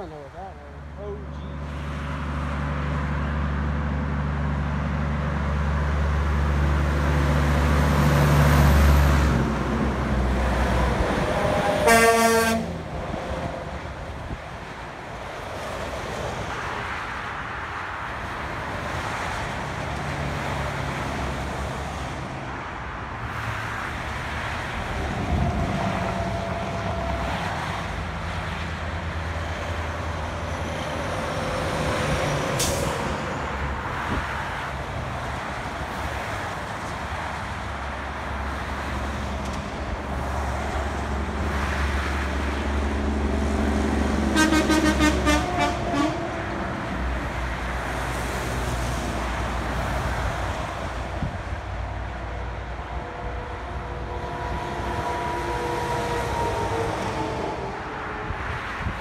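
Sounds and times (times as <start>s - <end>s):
highway traffic passing: 0.0s - 59.0s
truck engines droning: 0.0s - 59.0s
vehicle horn: 11.4s - 12.7s, 44.3s - 46.3s.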